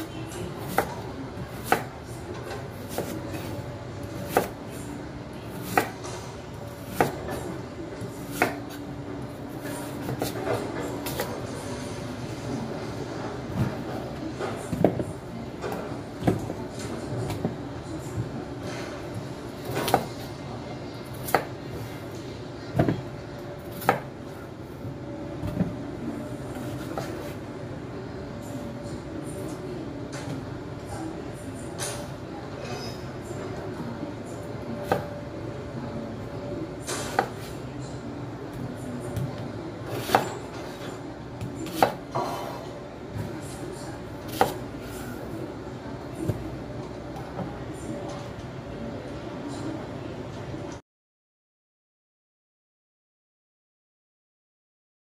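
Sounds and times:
steady background hum: 0.0 - 50.8
knife cutting onion: 2.7 - 3.6, 4.2 - 4.6, 39.9 - 40.8, 41.6 - 42.0, 44.3 - 45.1.

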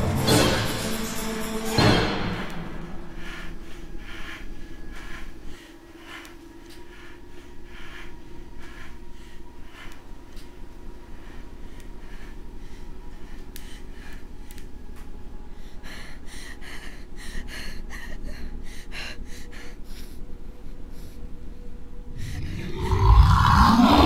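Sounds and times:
low steady drone: 0.0 - 24.0
frightened person breathing and gasping: 2.5 - 24.0
loud low creature roar: 22.3 - 24.0.

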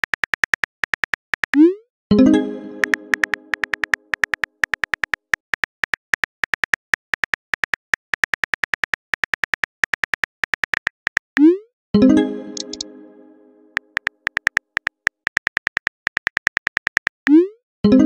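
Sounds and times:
keyboard typing clicks: 0.0 - 1.7, 2.7 - 11.5, 12.4 - 12.9, 13.7 - 17.4
message-sent chime: 12.0 - 13.8.

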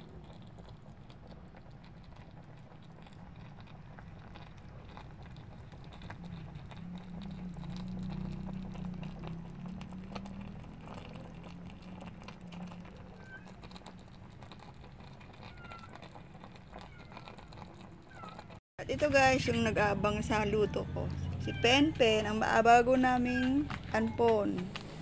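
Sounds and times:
broth simmering with pops: 0.0 - 25.0
low steady hum: 18.8 - 25.0.

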